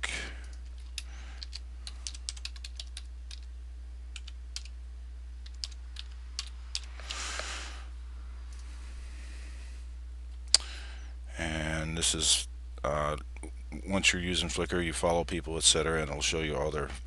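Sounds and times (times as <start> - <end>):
steady low hum: 0.0 - 17.0
keyboard typing clicks: 0.5 - 3.5, 4.2 - 4.7, 5.4 - 6.9.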